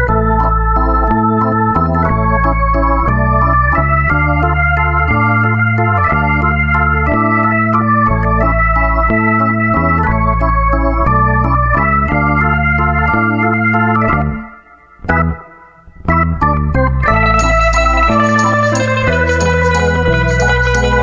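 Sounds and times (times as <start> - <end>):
electronic organ keyboard music: 0.0 - 21.0.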